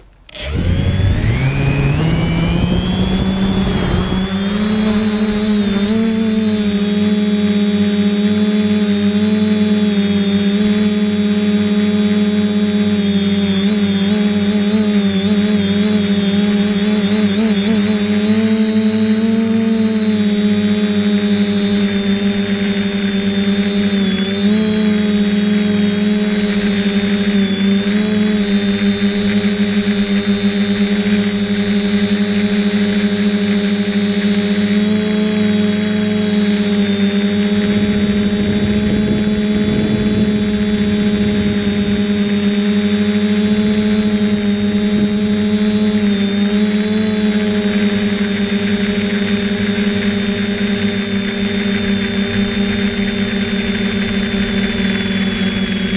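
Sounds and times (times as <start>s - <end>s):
drone propellers whining: 0.0s - 55.9s
wind buffeting microphone: 0.6s - 7.0s, 37.5s - 42.6s.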